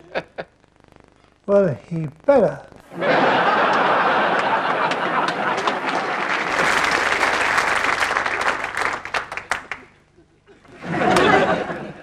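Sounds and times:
studio audience applauding: 0:03.2 - 0:10.0.

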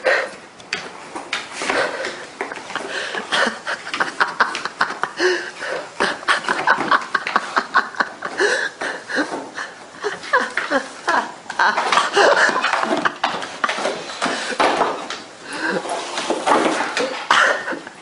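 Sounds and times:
person laughing: 0:01.7 - 0:16.1, 0:17.0 - 0:18.0.

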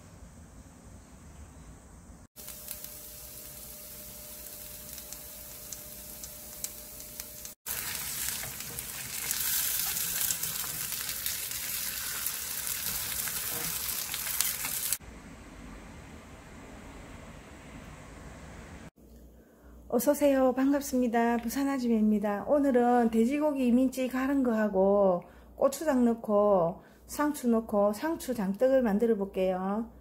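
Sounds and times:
pancakes sizzling in oil: 0:02.4 - 0:15.0.

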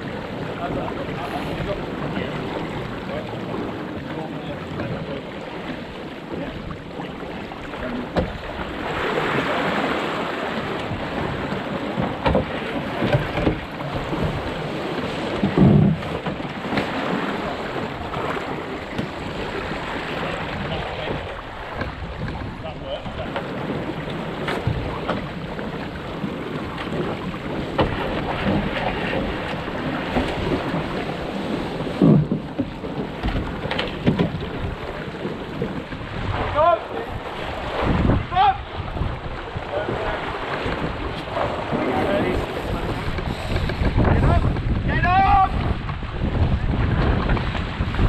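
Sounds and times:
water rushing along a hull: 0:00.0 - 0:48.0
wind buffeting the microphone: 0:00.0 - 0:48.0
sharp knocks and clicks: 0:12.0 - 0:13.7, 0:32.0 - 0:34.4.

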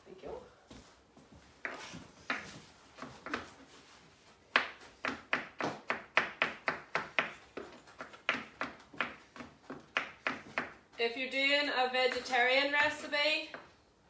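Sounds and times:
knife chopping on board: 0:04.5 - 0:10.8.

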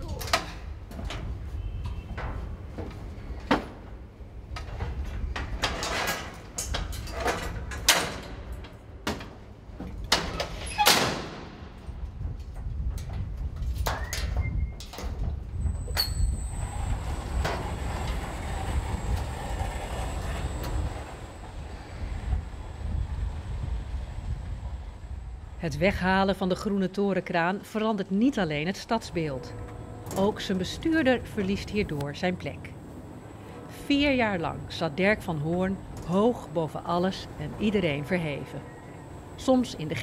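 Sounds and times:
metal door banging shut: 0:10.1 - 0:11.7.

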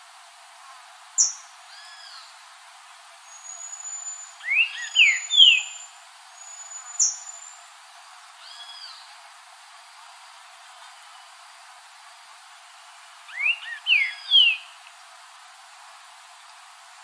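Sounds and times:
bird singing slurred whistles: 0:03.3 - 0:07.5, 0:13.3 - 0:14.7.

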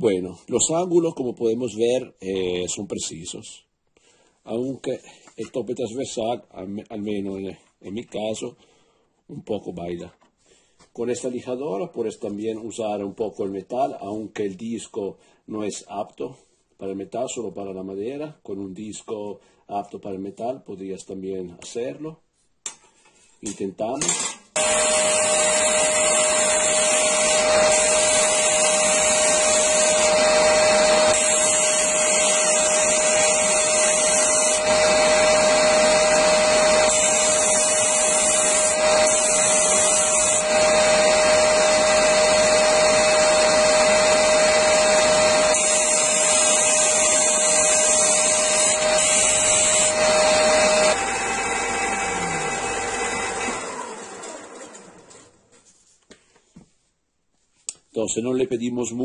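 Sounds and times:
sander motor humming: 0:24.6 - 0:55.3.

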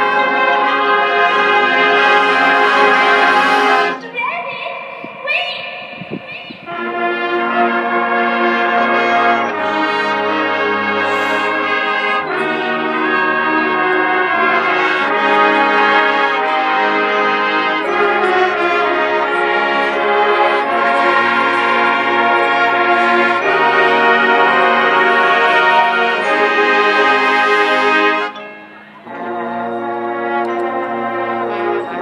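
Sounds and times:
marching band brass chords: 0:00.0 - 0:32.0.

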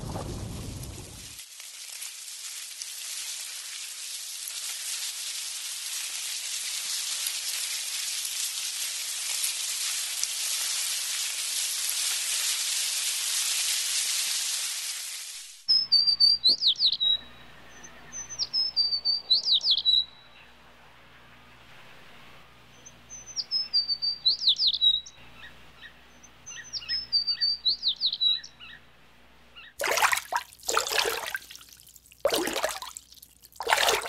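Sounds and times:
steady crackling hiss: 0:00.0 - 0:15.7
bird chirping calls: 0:15.7 - 0:20.6, 0:22.7 - 0:28.9.

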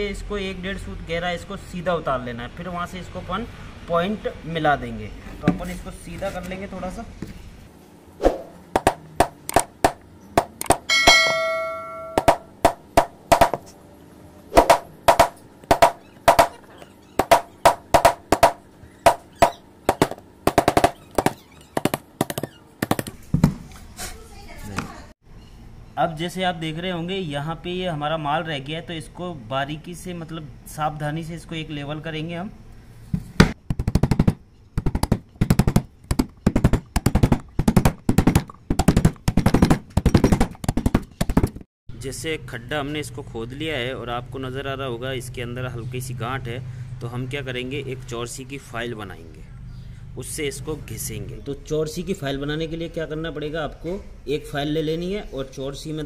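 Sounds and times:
hammer striking chisel into wood: 0:08.8 - 0:13.6, 0:14.6 - 0:16.6, 0:17.2 - 0:23.1.

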